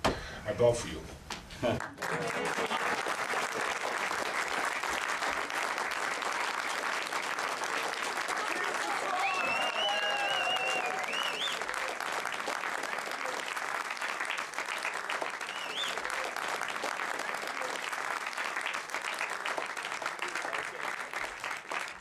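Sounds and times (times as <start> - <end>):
audience clapping: 1.3 - 22.0
high rising whistles: 9.2 - 11.6.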